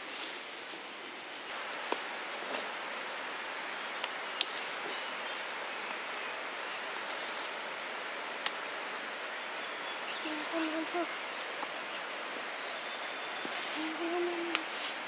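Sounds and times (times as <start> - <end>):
leaves and stems rustling: 0.0 - 15.0
steady outdoor hiss: 0.0 - 15.0
sharp snaps of stems: 4.0 - 4.8, 8.4 - 8.6, 14.4 - 15.0.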